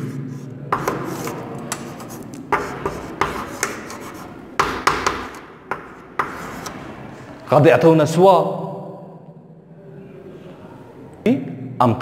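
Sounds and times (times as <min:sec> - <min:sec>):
chalk scratching on blackboard: 0:00.0 - 0:06.8
chalk tapping on board: 0:00.0 - 0:06.8.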